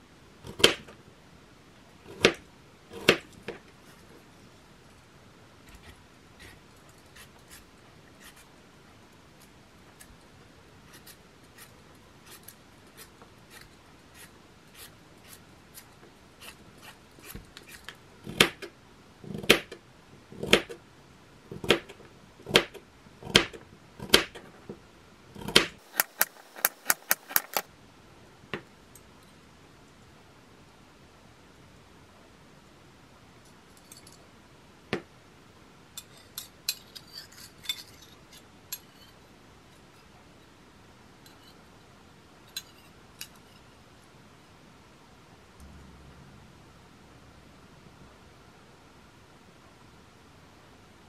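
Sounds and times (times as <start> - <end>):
knife cutting carrot: 25.4 - 27.7.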